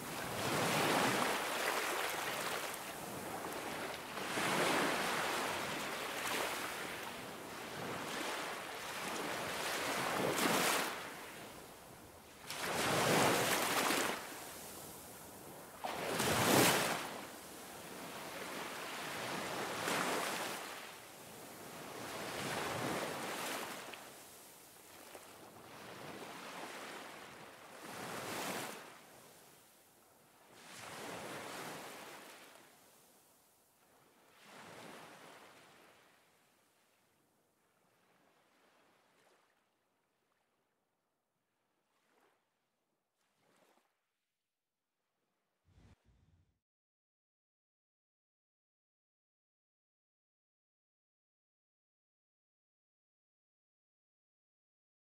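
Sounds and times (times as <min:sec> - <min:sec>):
waves breaking on a beach: 0:00.0 - 0:37.0, 0:37.6 - 0:39.6, 0:41.9 - 0:42.4, 0:43.3 - 0:43.9.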